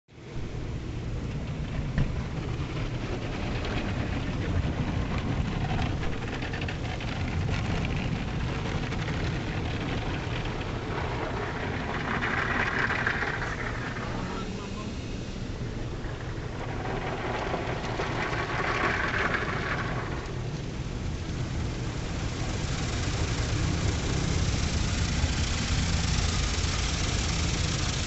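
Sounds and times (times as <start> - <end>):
car wash machinery rumble: 0.2 - 28.0
water spraying on glass: 16.1 - 28.0.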